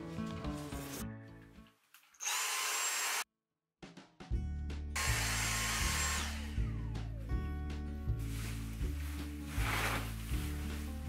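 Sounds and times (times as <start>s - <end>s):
small motor whirring: 2.2s - 3.2s
background music with bass pulse: 4.2s - 11.0s.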